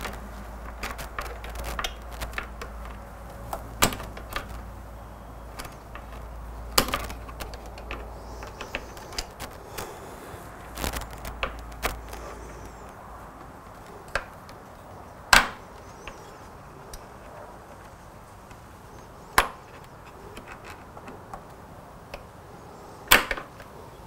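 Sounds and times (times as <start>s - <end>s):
faint clicks: 5.4s - 22.4s.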